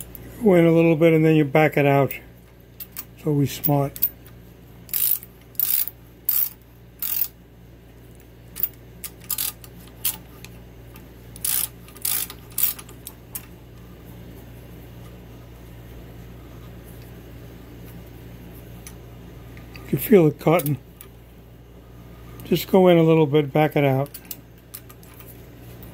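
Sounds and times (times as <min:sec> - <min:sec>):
steady low hum: 0:00.0 - 0:25.9
tap wrench ticking and scraping metal: 0:04.9 - 0:07.3, 0:11.4 - 0:12.9.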